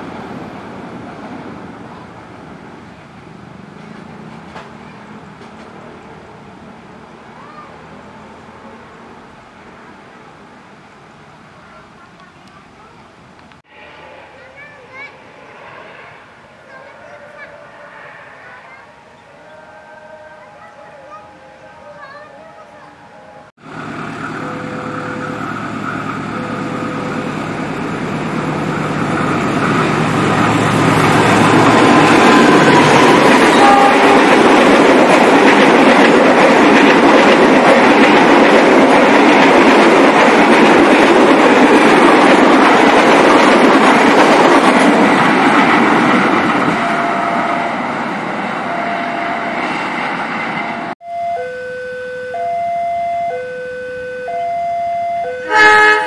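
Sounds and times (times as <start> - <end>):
train wheels rushing on track: 0.0 - 10.5, 12.0 - 19.1, 23.6 - 51.0
locomotive engine hum: 12.0 - 51.0
level crossing two-tone alarm: 51.0 - 56.0.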